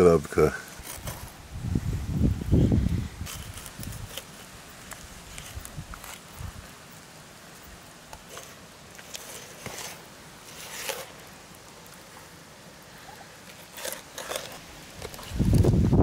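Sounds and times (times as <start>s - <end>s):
knife scraping fish on board: 8.2s - 11.1s, 13.6s - 15.2s.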